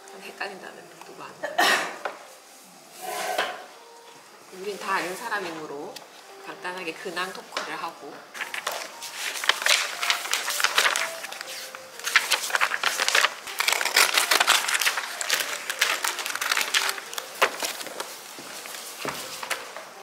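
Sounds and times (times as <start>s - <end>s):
magazine pages flipping: 8.3s - 20.0s.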